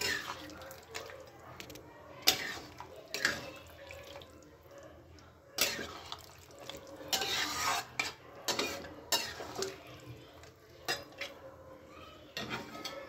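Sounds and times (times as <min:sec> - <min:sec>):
spatula scraping a wok: 0:00.0 - 0:00.5, 0:02.2 - 0:03.5, 0:05.6 - 0:06.2, 0:07.0 - 0:09.8, 0:12.3 - 0:13.0.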